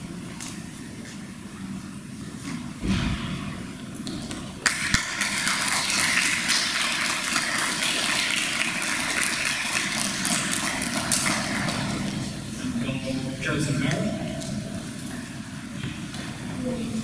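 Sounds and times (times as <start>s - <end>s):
dull low thump: 2.8s - 4.6s
audience applauding: 4.6s - 12.4s.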